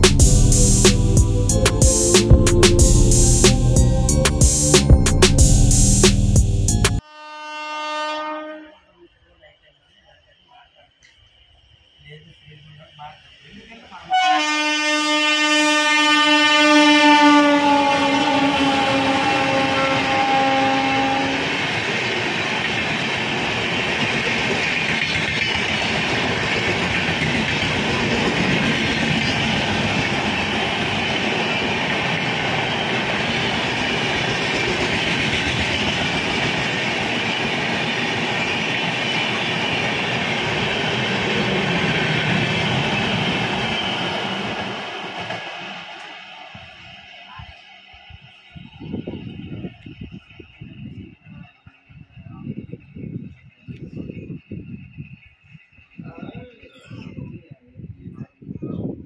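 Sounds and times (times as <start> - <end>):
train coaches running on rails: 0.0 - 59.0
train horn: 7.0 - 9.1, 14.0 - 21.6.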